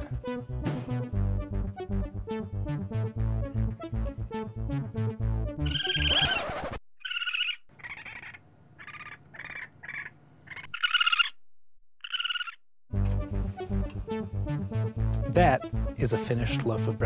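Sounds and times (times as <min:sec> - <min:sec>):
background music: 0:00.0 - 0:06.4, 0:12.9 - 0:17.0
trilling animal call: 0:05.6 - 0:11.4, 0:12.0 - 0:12.6
warbling animal calls: 0:05.6 - 0:11.4, 0:12.0 - 0:12.6.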